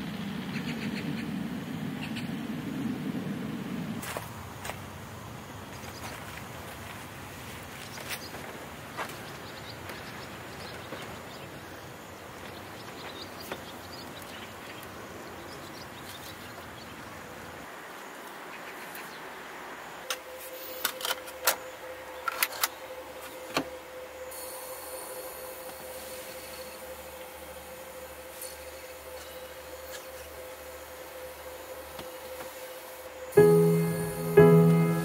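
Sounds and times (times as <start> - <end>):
faint steady hum: 0.0 - 35.0
outdoor background hiss: 0.0 - 35.0
cd player disc whine: 20.0 - 35.0.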